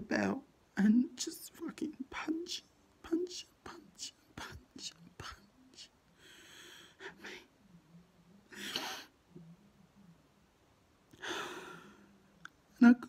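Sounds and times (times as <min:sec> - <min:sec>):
man breathing: 0:06.2 - 0:07.4.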